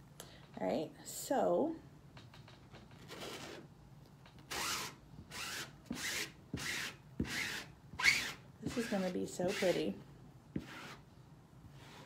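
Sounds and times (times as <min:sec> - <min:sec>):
squeegee scraping paste: 0:04.6 - 0:10.0, 0:10.6 - 0:11.1.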